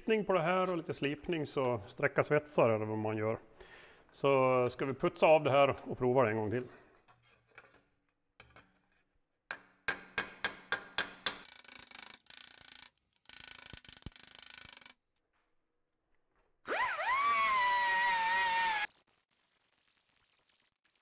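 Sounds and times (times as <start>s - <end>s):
die grinder whining: 16.7s - 19.0s.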